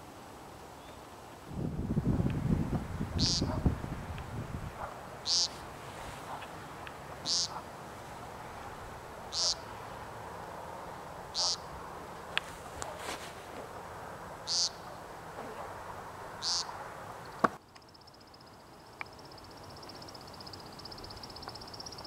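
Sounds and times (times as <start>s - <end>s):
woodcock nasal buzzy call: 3.2s - 3.6s, 5.2s - 5.6s, 7.2s - 7.6s, 9.3s - 9.7s, 11.3s - 11.7s, 14.4s - 14.9s.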